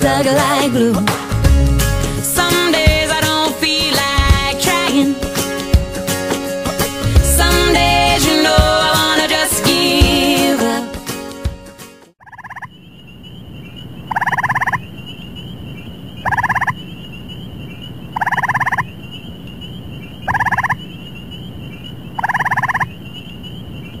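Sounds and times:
music: 0.0s - 12.2s
tree frog trilling: 12.2s - 12.9s, 14.0s - 14.9s, 16.1s - 24.0s.

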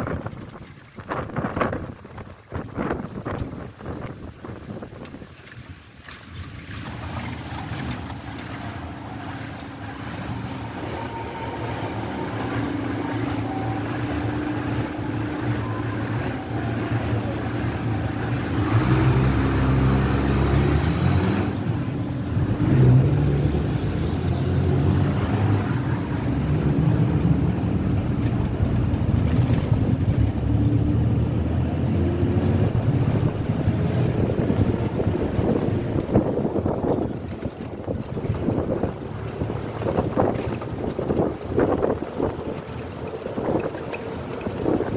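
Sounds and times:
bus passing: 0.0s - 44.9s
vehicle engine and road noise: 0.0s - 44.9s.

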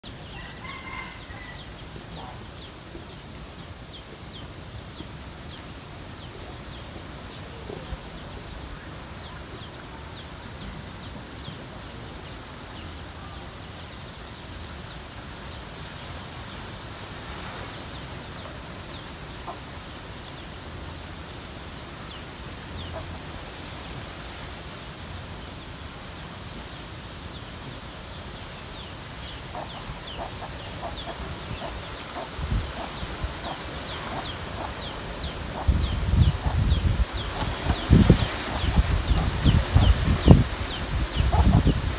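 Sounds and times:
birds chirping: 0.0s - 23.8s, 25.4s - 41.9s
background hiss: 0.0s - 41.9s
chickens clucking: 22.8s - 23.3s, 29.2s - 41.9s.

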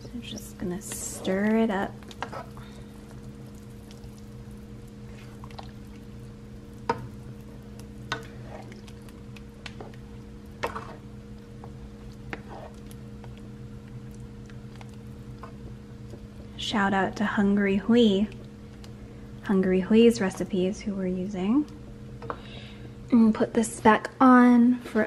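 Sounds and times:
steady low hum: 0.0s - 25.0s
liquid sloshing in a pan: 0.2s - 17.0s.

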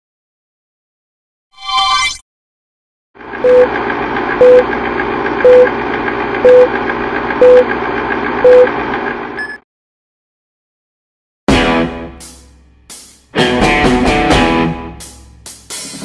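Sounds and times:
film projector running: 3.2s - 9.4s
short beeps: 4.4s - 4.6s, 5.4s - 5.7s, 6.5s - 6.7s, 7.4s - 7.6s, 8.4s - 8.7s.

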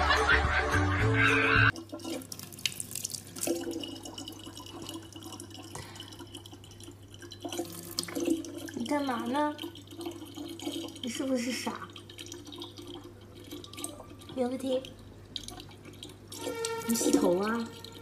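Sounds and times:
background music: 0.0s - 1.8s, 16.2s - 18.0s
water trickling into a bottle: 1.7s - 18.0s.

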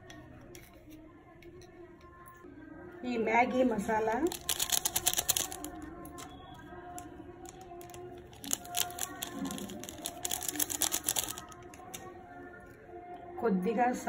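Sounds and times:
foil sachet crinkling and rattling: 4.2s - 6.3s, 7.4s - 12.0s.

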